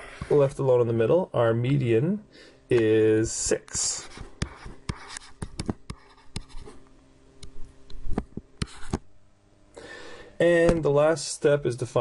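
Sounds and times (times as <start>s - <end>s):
stylus writing on tablet screen: 3.8s - 6.8s, 8.6s - 9.0s.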